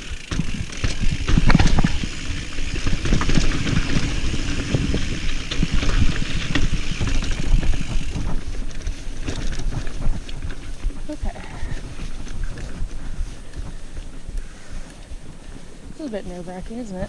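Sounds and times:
bike tyre rumble: 0.0s - 17.0s.

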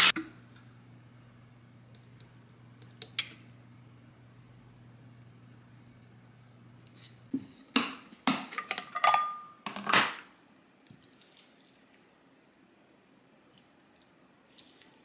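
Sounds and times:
low steady hum: 0.1s - 7.6s
dishes and utensils clattering: 8.3s - 10.2s.

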